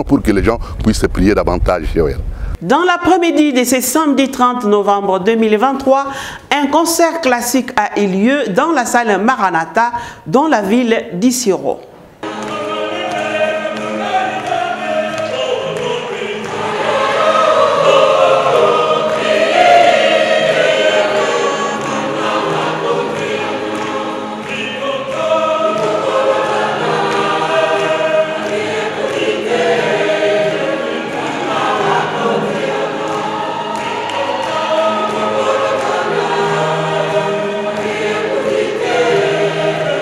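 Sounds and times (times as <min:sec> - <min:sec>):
mixed choir singing in parts: 0:12.2 - 0:40.0.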